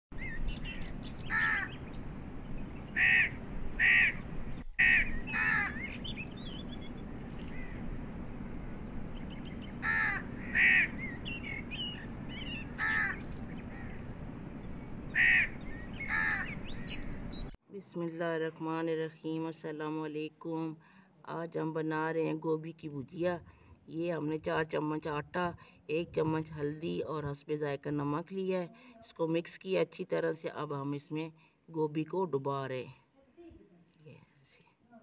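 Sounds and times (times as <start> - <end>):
small birds chirping: 0.1 - 8.0, 9.0 - 17.6
crow cawing: 1.2 - 1.8, 2.9 - 4.2, 4.8 - 6.1, 9.8 - 14.0, 15.1 - 17.0.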